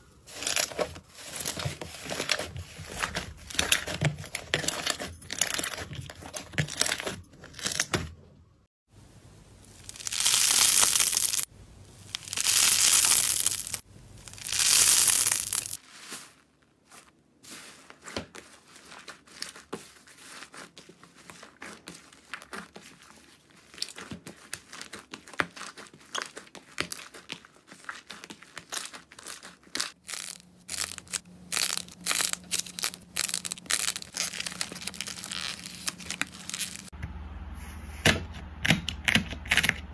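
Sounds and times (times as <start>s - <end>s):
slime squelching: 9.7s - 36.9s
slime crackling and popping: 9.8s - 16.1s, 27.8s - 36.9s.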